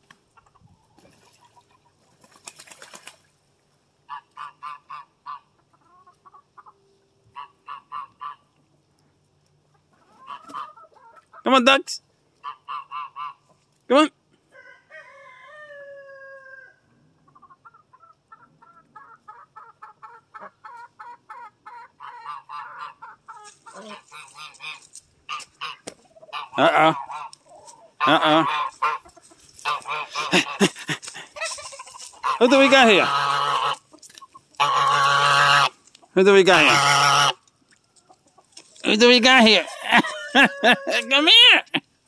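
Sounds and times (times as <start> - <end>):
hens clucking rapidly: 0.0 - 3.3, 4.1 - 8.6, 9.6 - 11.7, 12.4 - 13.7, 17.2 - 41.8
ducks quacking: 4.0 - 8.6, 9.8 - 11.7, 12.4 - 14.1, 17.3 - 37.4, 38.1 - 41.8
rooster crowing: 14.5 - 16.9, 39.5 - 41.2
loud goose honks: 23.7 - 27.4, 28.0 - 29.0, 29.6 - 30.8, 32.2 - 33.8, 34.6 - 35.8, 36.4 - 37.4.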